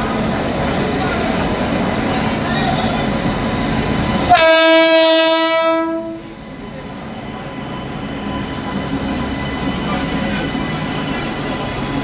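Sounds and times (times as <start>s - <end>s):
train rumbling past: 0.0s - 12.0s
locomotive horn blast: 4.3s - 6.2s.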